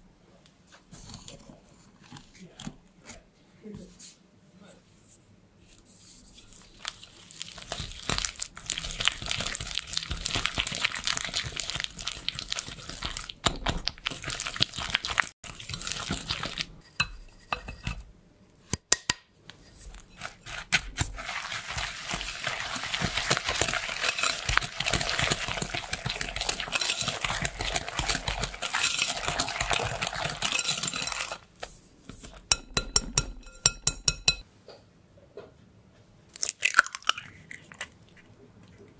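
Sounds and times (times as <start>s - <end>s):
whisk scraping glass bowl: 6.3s - 18.1s, 19.6s - 34.4s.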